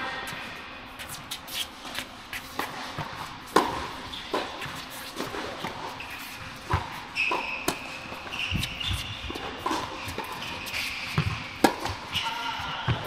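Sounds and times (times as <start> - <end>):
sneaker squeaks on court: 6.0 - 13.0.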